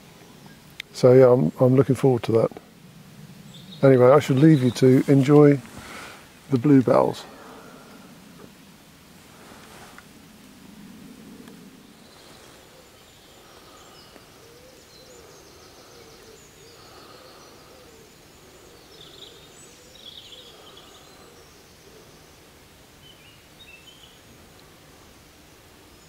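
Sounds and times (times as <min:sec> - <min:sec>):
birds singing high phrases: 0:03.6 - 0:05.6
low repeating bird call: 0:11.4 - 0:26.0.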